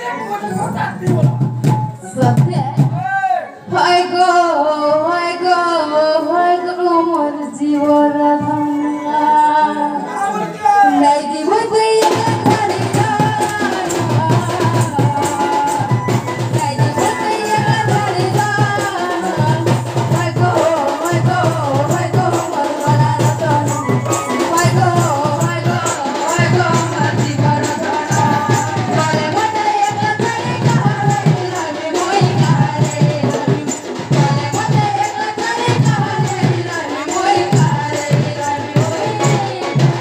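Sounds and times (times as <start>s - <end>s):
barrel drum beating: 0.8s - 3.2s, 11.7s - 40.0s
rattling percussion: 11.6s - 40.0s.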